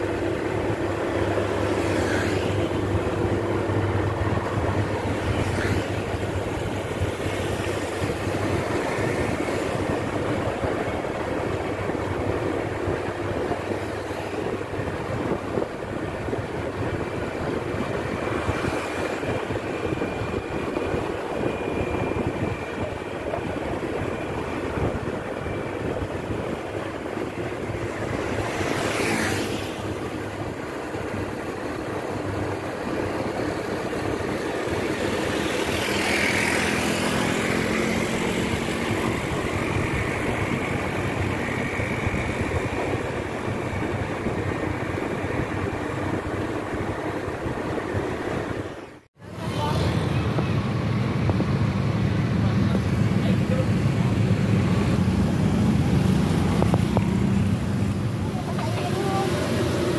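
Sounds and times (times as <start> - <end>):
road and wind noise: 0.0 - 59.9
engine passing: 23.5 - 32.3, 33.0 - 47.5.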